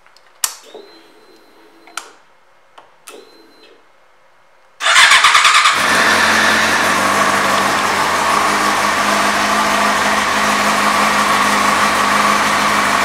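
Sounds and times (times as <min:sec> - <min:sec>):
motorcycle engine starting and idling: 0:04.8 - 0:13.0.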